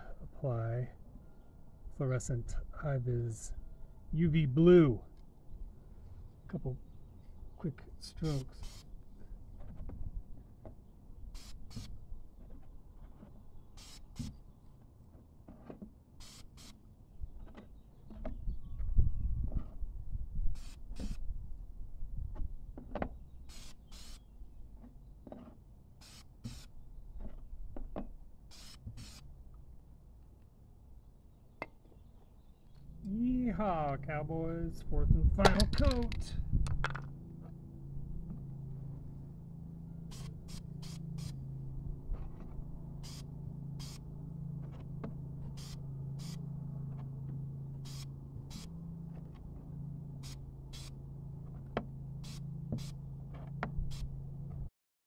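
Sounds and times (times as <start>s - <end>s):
spray paint bursts: 8.3s - 8.9s, 11.4s - 11.9s, 13.8s - 14.4s, 16.2s - 16.8s, 23.5s - 24.2s, 26.0s - 26.7s, 28.5s - 29.3s, 40.1s - 41.4s, 43.0s - 44.0s, 45.6s - 46.4s, 47.8s - 48.7s, 50.2s - 51.0s, 52.2s - 53.0s
steady low hum: 32.6s - 54.7s
spray paint can hissing: 40.1s - 41.4s, 43.0s - 44.0s, 45.6s - 46.4s.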